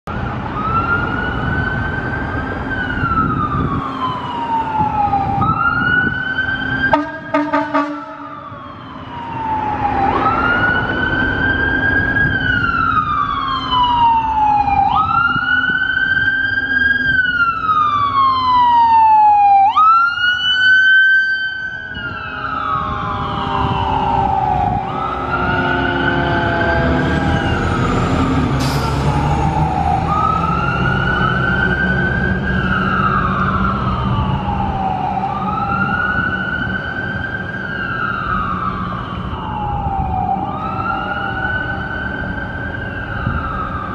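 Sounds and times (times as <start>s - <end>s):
truck engine rumble: 0.1s - 20.8s, 21.8s - 43.9s
mechanical siren wailing: 0.5s - 28.6s, 29.3s - 43.9s
air horn blast: 6.9s - 8.4s.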